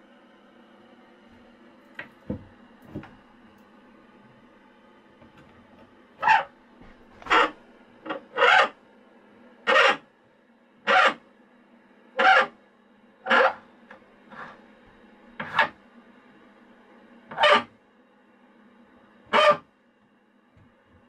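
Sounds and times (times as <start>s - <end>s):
low steady hum: 0.0s - 21.0s
harsh rasping calls: 7.2s - 7.6s, 8.3s - 8.8s, 9.7s - 10.0s, 10.9s - 11.2s, 13.3s - 13.6s.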